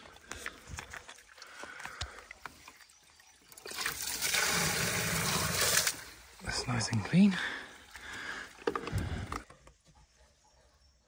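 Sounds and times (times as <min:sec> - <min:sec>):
water rushing from drain tap: 0:03.5 - 0:06.1.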